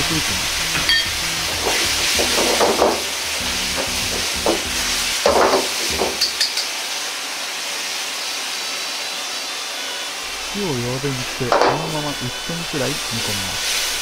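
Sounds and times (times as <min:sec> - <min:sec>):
meat sizzling in a wok: 0:00.0 - 0:14.0
utensil scraping a pan: 0:00.8 - 0:03.1.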